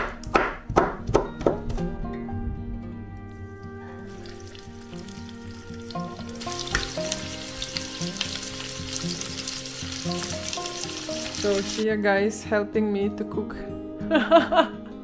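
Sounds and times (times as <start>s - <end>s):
background music: 0.0s - 15.0s
food sizzling in frying pan: 4.1s - 11.8s.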